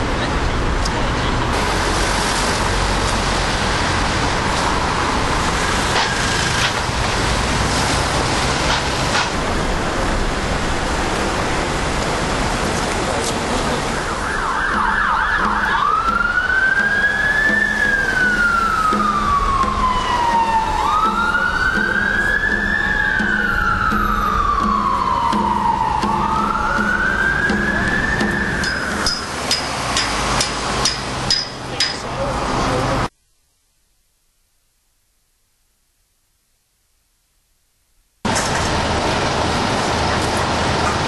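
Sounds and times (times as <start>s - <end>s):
street traffic: 0.0s - 33.2s, 38.2s - 41.0s
emergency vehicle siren: 13.4s - 29.6s.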